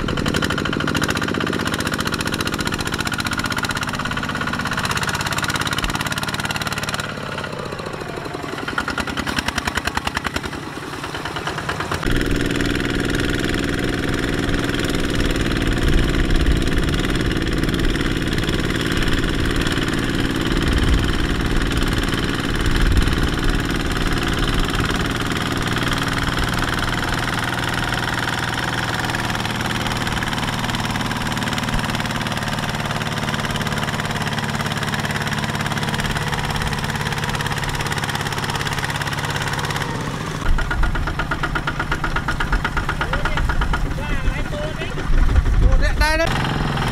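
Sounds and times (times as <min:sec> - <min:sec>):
diesel tractor engine under load: 0:00.0 - 0:46.9.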